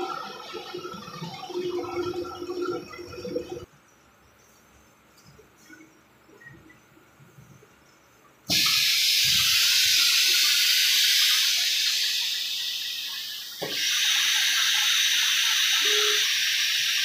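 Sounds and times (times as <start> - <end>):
compressed air hissing: 8.5 - 17.0.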